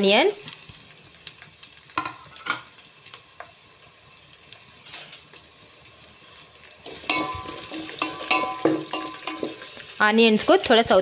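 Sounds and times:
onions sizzling in oil: 0.0 - 11.0
spoon scraping metal pot: 6.9 - 9.8.

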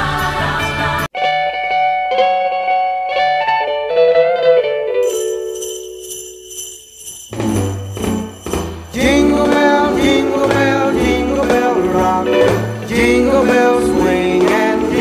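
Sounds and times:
pop song with jingle bells: 0.0 - 1.1, 5.0 - 15.0
person singing: 0.0 - 1.4, 8.9 - 15.0
bass and band playing: 0.0 - 1.5, 7.4 - 15.0.

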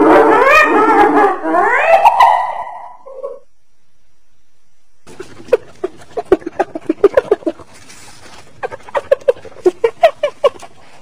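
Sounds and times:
hyena giggling calls: 5.1 - 11.0.

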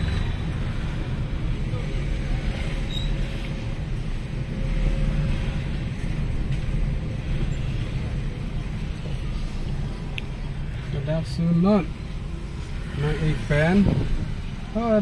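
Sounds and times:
car engine and tyre rumble: 0.0 - 15.0.

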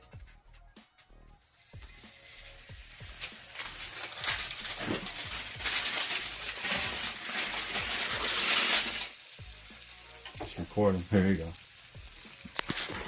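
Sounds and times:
dough sizzling in skillet: 1.5 - 13.0.

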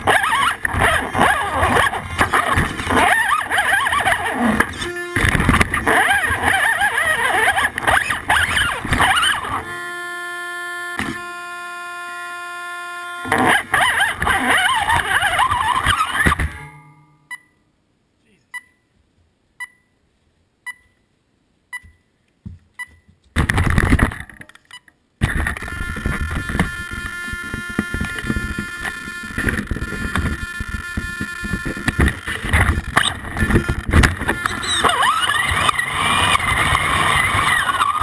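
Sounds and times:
mechanical whirring: 0.0 - 16.6, 25.2 - 38.0
short electronic beeps: 16.6 - 17.6, 18.5 - 18.9, 19.6 - 20.0, 20.7 - 21.0, 34.3 - 36.4.

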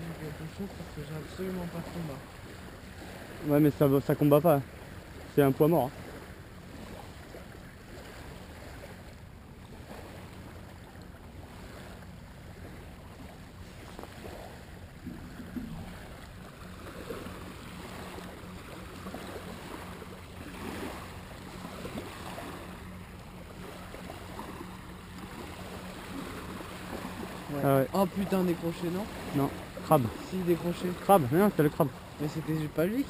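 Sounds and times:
small waves lapping on sand: 0.0 - 33.0
steady low hum: 0.0 - 33.0.

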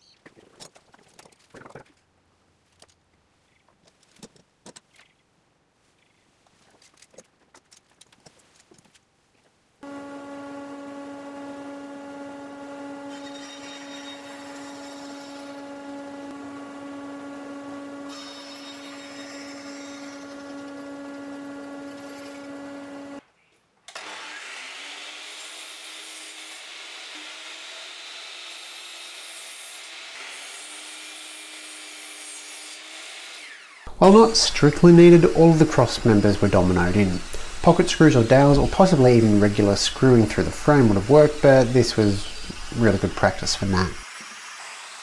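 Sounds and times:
bandsaw cutting plywood: 9.8 - 23.2, 23.9 - 45.0
bandsaw motor humming: 9.8 - 23.2, 33.4 - 45.0
miter saw whining: 9.8 - 23.2, 32.8 - 45.0.

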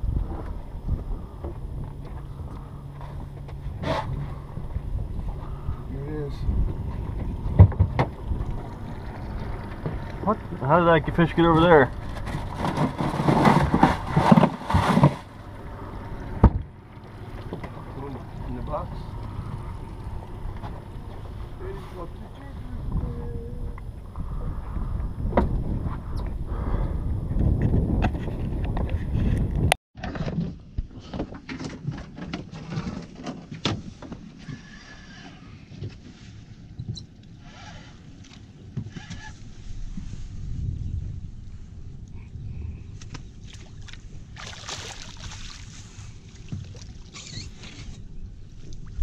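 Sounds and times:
handling noise on boat: 0.0 - 26.4, 27.3 - 41.2, 42.9 - 49.0
low rumble: 0.0 - 29.8.

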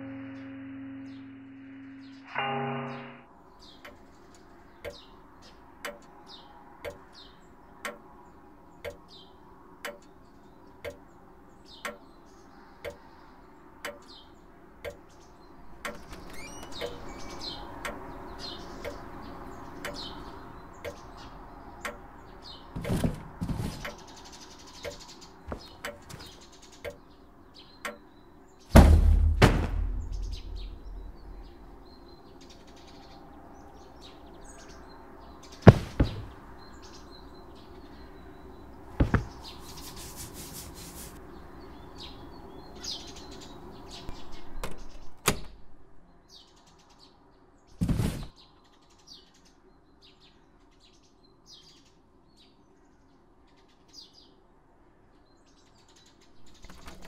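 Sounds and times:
heavy thud with deep boom: 28.7 - 31.6, 35.7 - 36.4.

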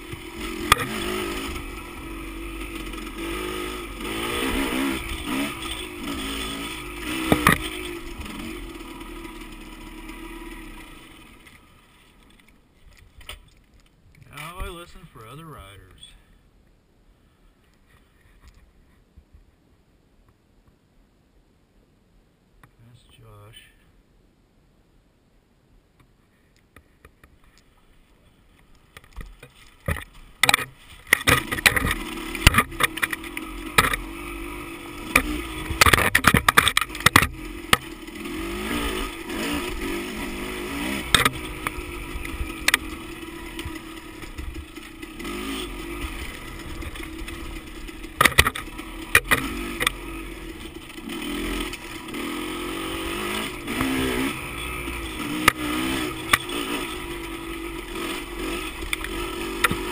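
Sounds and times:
dirt bike engine revving: 0.0 - 11.8, 29.9 - 59.9.

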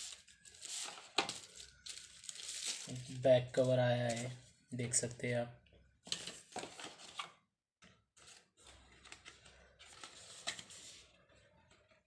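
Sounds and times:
packaging rustling: 0.0 - 3.2.

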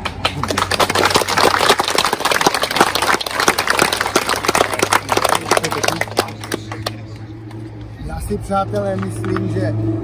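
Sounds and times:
crowd applauding: 0.0 - 7.3.

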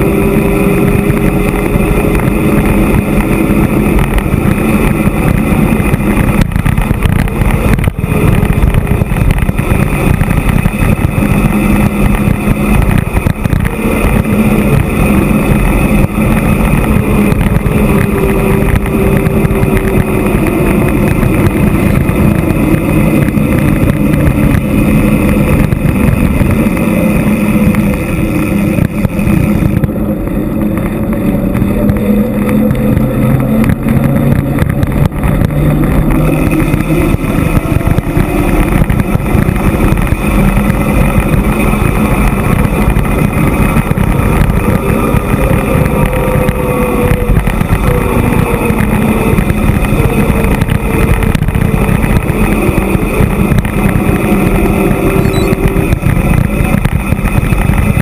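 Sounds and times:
bicycle tyre noise: 0.0 - 58.0
wind rumble on microphone: 0.0 - 58.0.

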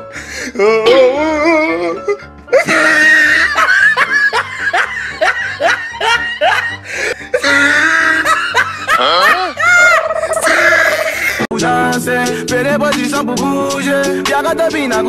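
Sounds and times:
man laughing: 0.6 - 11.5
background music with bass beat: 11.5 - 15.0.

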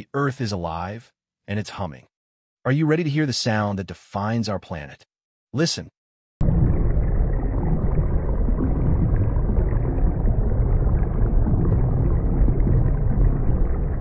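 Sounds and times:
deep rumbling drone: 6.4 - 14.0.

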